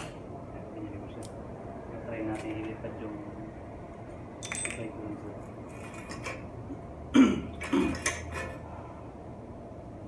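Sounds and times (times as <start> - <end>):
metallic clinking of bicycle tools: 4.4 - 4.9.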